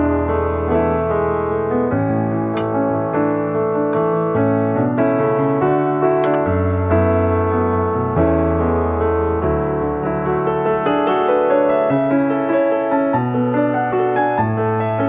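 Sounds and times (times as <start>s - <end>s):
slow piano music: 0.0s - 15.0s.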